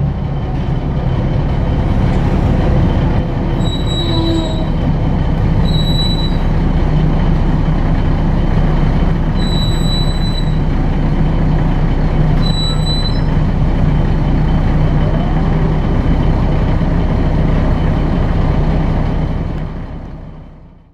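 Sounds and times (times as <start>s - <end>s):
bus engine and road drone: 0.0s - 20.9s
brief high-pitched squeals: 3.6s - 4.8s, 5.6s - 6.5s, 9.4s - 10.6s, 12.4s - 13.4s.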